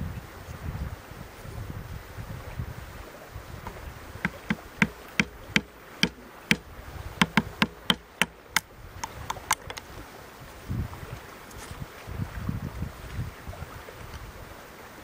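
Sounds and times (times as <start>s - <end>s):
hatchet tapping wood: 4.2s - 9.8s.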